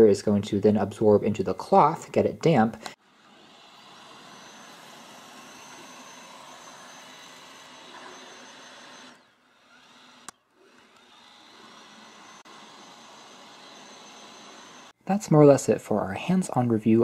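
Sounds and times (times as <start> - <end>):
robot vacuum whirring: 2.9 - 15.0.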